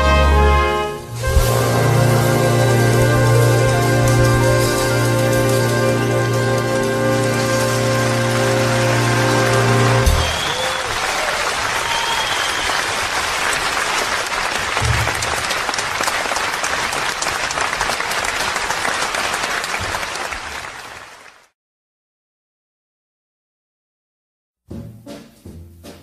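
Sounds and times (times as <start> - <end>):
audience applauding: 1.5 - 21.6.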